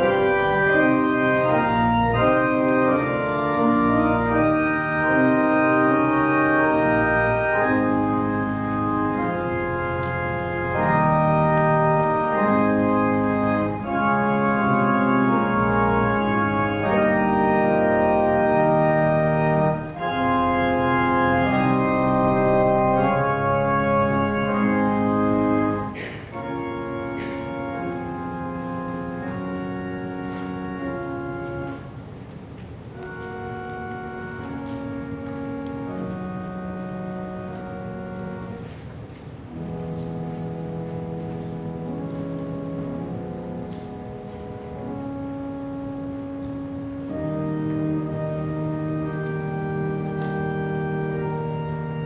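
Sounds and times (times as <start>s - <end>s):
pipe organ chords: 0.0s - 52.0s.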